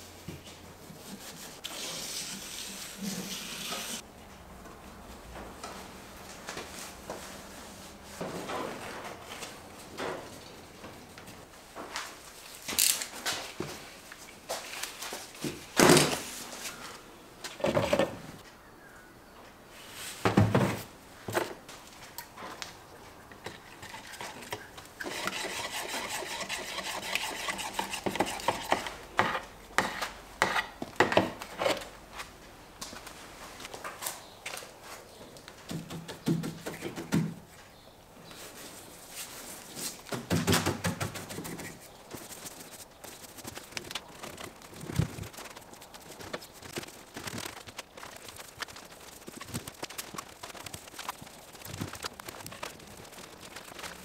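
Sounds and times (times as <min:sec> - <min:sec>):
resin stirred in plastic cup: 0:23.5 - 0:28.7, 0:41.4 - 0:54.0.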